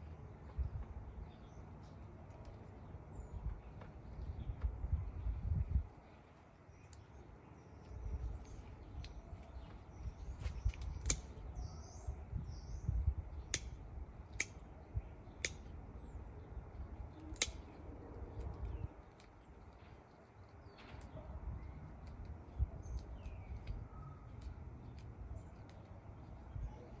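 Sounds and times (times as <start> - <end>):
pruning shears snipping: 10.4 - 11.7, 13.4 - 14.7, 15.3 - 15.8, 17.1 - 19.4
faint bird chirps: 20.2 - 27.0.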